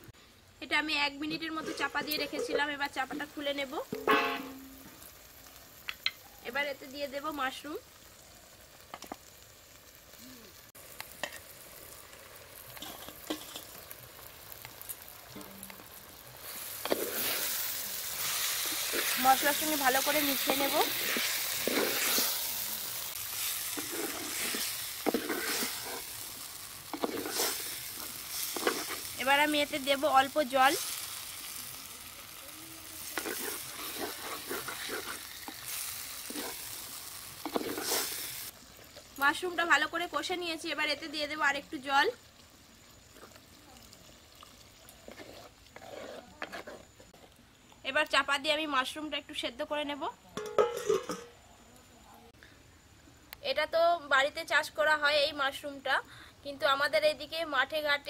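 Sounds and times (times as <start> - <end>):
mushrooms sizzling in a pan: 0.0 - 52.0
wooden spatula scraping clay pot: 1.4 - 2.8, 20.4 - 22.4, 23.7 - 26.1, 26.9 - 29.2, 33.1 - 35.6, 37.4 - 38.1, 45.0 - 47.3.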